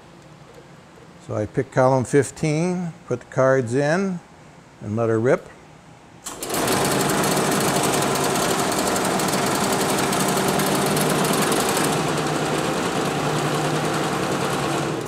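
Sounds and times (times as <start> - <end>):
motor hum: 6.2 - 15.0.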